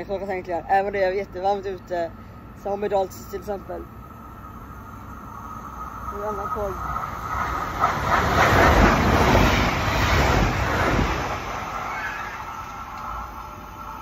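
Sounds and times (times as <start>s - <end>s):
passenger train passing: 1.0s - 14.0s.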